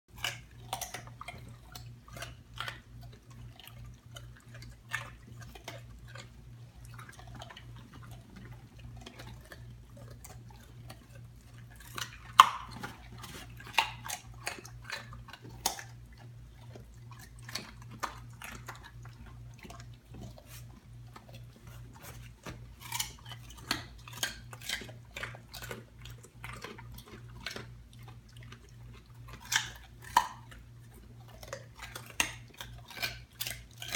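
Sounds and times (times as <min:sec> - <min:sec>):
dogs crunching carrots: 0:00.1 - 0:33.9.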